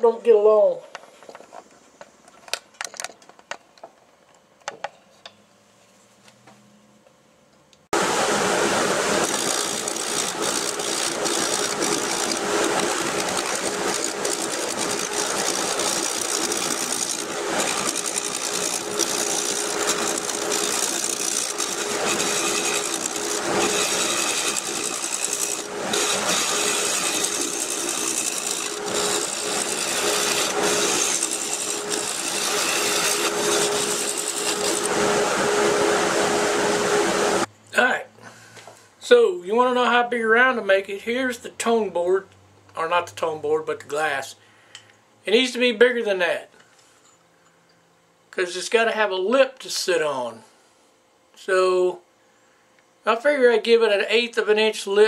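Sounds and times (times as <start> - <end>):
wood lathe motor hum: 8.0 - 37.5
tool scraping wood: 9.0 - 35.6.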